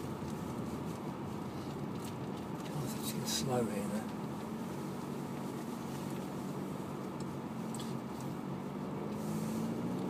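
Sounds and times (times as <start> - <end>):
car interior engine hum: 0.0 - 10.0.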